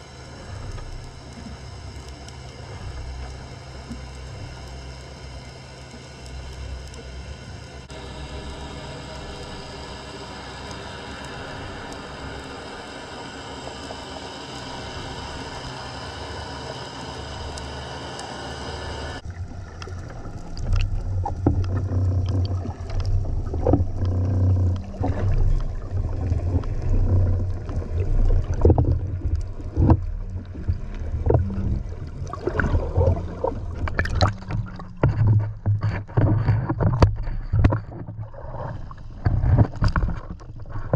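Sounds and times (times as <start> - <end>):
muffled underwater rumbling: 0.0 - 40.9
steady hum of even tones: 0.0 - 40.9
water sloshing against housing: 19.2 - 40.9.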